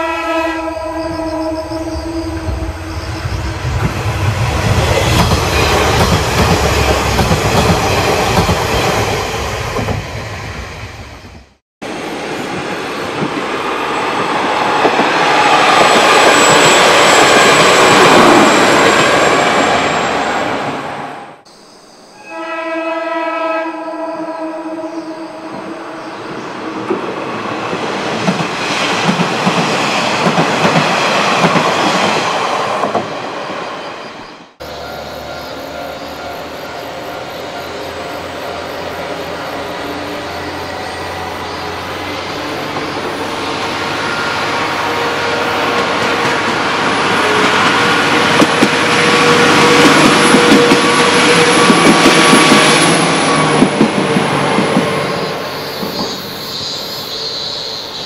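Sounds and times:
train horn blast: 0.0s - 3.6s, 22.2s - 26.2s, 43.6s - 52.0s
train wheels rolling on rails: 2.3s - 21.1s, 25.5s - 58.0s
diesel train engines running: 34.6s - 58.0s.

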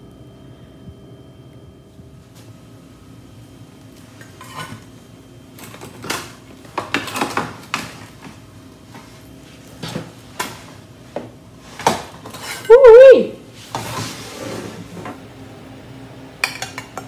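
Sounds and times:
metal utensil scraping baking sheet: 12.2s - 12.7s.

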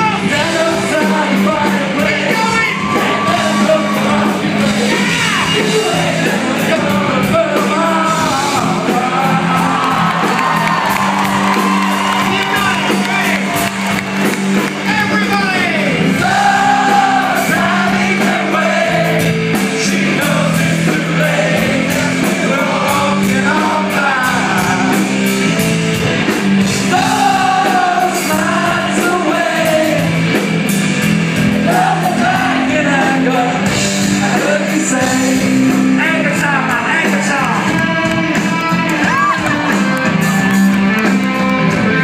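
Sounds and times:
man singing into microphone: 0.0s - 10.2s, 19.8s - 25.0s, 26.9s - 30.1s, 31.7s - 39.6s
drums: 0.0s - 42.0s
electric guitar: 0.0s - 42.0s.

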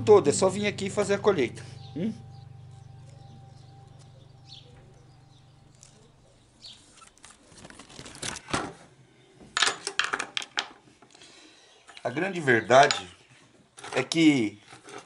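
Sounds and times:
low hum: 0.0s - 7.0s
rustling: 3.9s - 11.2s.

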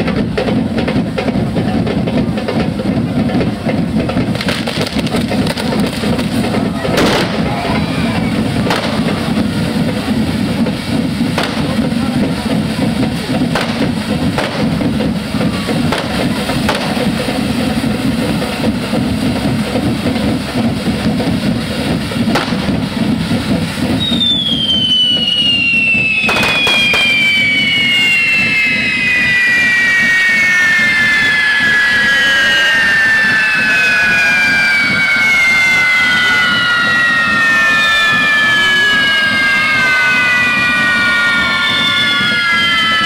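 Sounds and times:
fireworks roaring: 0.0s - 43.0s
sharp firework cracks: 3.7s - 30.1s
high falling whistle: 22.3s - 43.0s.

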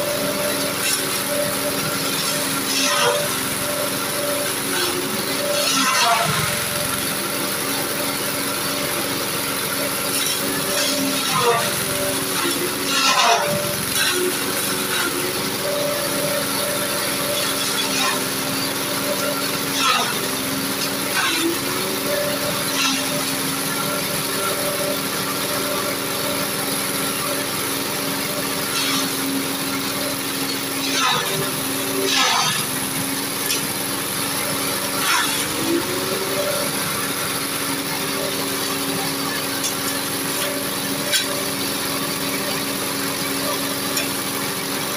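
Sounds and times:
grass chopper engine running: 0.0s - 44.9s.

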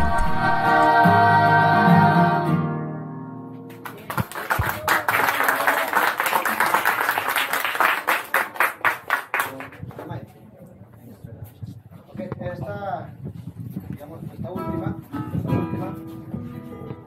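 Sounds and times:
choir singing a chord: 0.0s - 3.1s
audience applauding: 3.7s - 9.8s.

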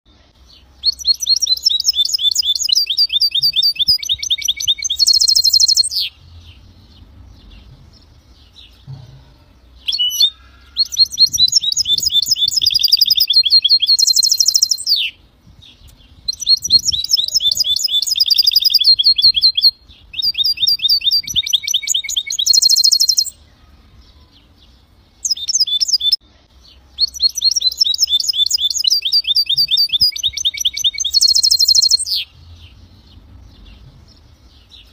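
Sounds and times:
bird singing trilled phrases: 0.1s - 34.9s.

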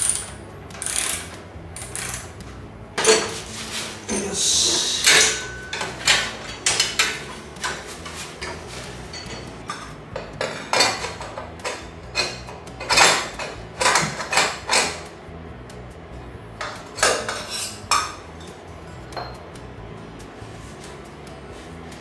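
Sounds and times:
wrench and bolts clinking on metal: 0.0s - 2.3s, 5.0s - 15.1s.

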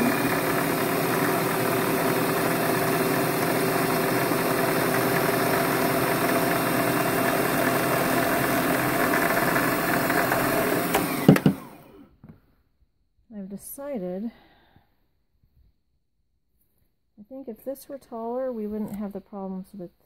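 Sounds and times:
sewing machine motor running: 0.0s - 11.9s.

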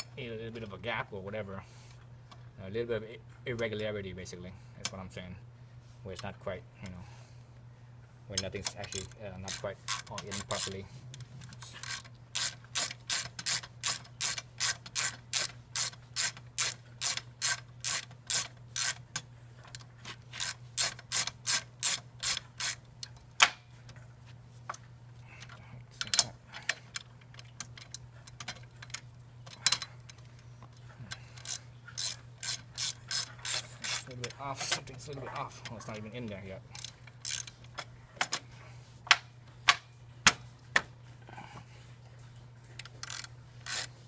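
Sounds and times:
ratchet wrench clicking: 8.7s - 10.8s, 11.8s - 19.2s, 20.4s - 23.2s, 31.4s - 34.8s, 36.8s - 37.6s, 42.8s - 43.9s.

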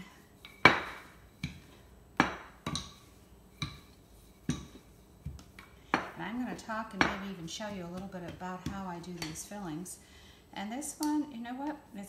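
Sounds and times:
rolling pin knocking on countertop: 0.6s - 6.2s, 7.0s - 9.4s.

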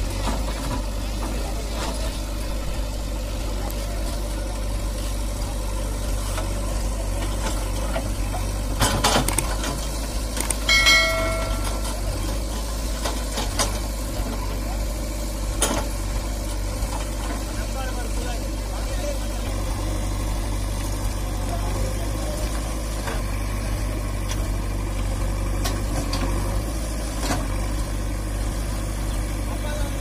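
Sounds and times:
diesel engines running: 0.0s - 30.0s
brief held tone: 10.7s - 12.1s.

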